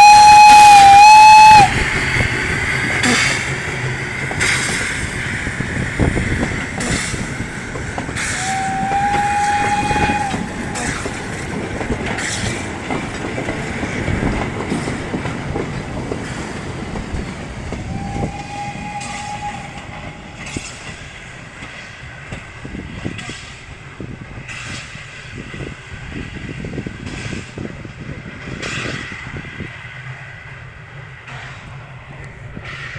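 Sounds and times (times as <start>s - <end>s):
steam locomotive whistle: 0.0s - 2.3s, 8.2s - 11.2s, 17.8s - 20.7s
train carriages rumbling: 0.0s - 32.9s
wheels clicking over rail joints: 2.2s - 32.9s.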